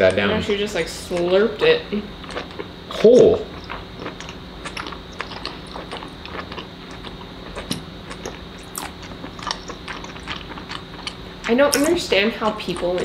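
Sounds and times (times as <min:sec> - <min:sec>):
faint steady hum: 0:00.0 - 0:13.0
mouth chewing food: 0:00.2 - 0:13.0.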